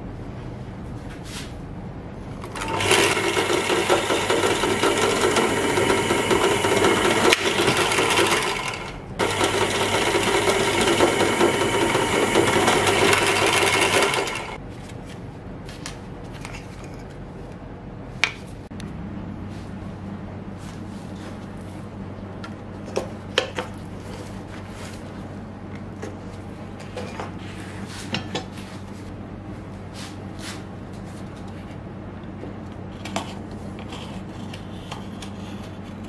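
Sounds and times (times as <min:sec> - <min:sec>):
drill press drilling wood: 0:02.4 - 0:14.6.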